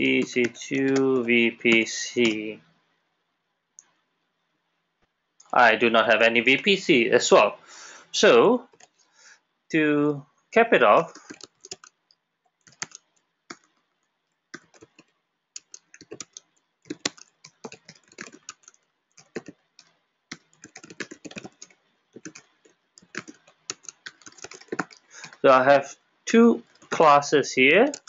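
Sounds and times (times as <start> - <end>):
computer keyboard typing: 0.0 - 2.6, 8.7 - 9.0, 11.0 - 13.8, 14.5 - 25.4, 26.6 - 27.0.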